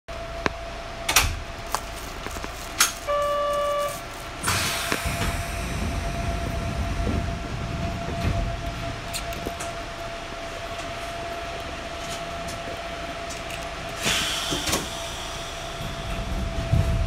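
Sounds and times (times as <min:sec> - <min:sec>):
train rumbling: 0:00.1 - 0:17.0
signal tone: 0:03.0 - 0:04.0
air hiss: 0:04.4 - 0:07.0, 0:14.0 - 0:16.3.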